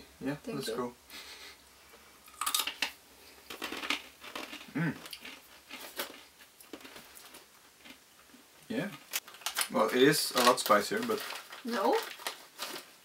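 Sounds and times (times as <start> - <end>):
dried peas being chewed: 2.3 - 8.4.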